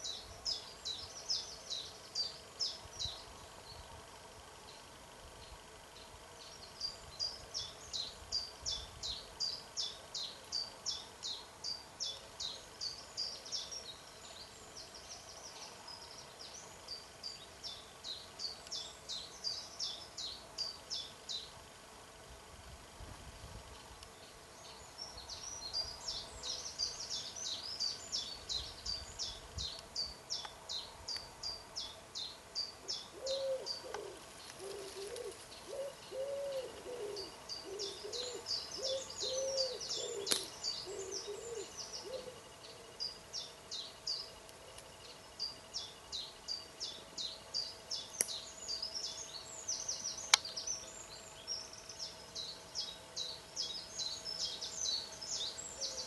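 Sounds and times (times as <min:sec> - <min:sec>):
songbird singing high phrases: 0:04.7 - 0:21.5, 0:23.8 - 0:56.0
pigeon cooing: 0:33.1 - 0:42.4
sharp click: 0:40.3 - 0:40.6, 0:48.2 - 0:48.4.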